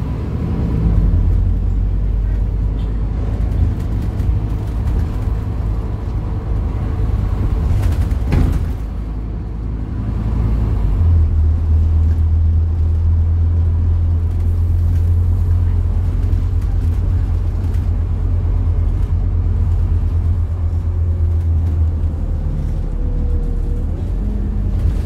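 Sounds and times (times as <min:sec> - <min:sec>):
bus engine drone: 0:00.0 - 0:25.0
road noise: 0:00.0 - 0:25.0.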